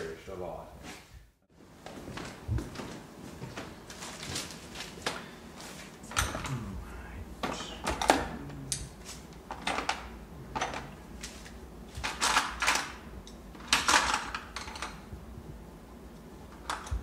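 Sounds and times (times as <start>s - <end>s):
tools and paper rustling: 3.5s - 5.9s.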